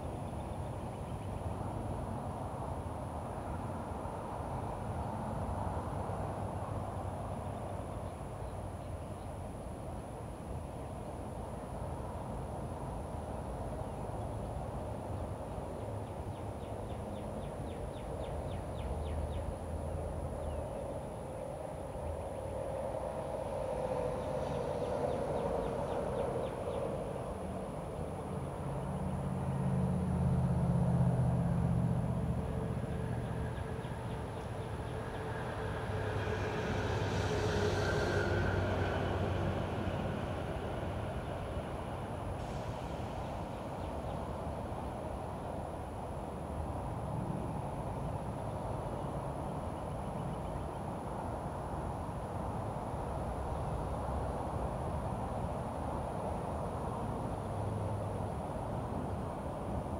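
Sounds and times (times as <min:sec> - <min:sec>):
low outdoor background rumble: 0:00.0 - 0:59.9
distant vehicle rumble: 0:22.0 - 0:45.3.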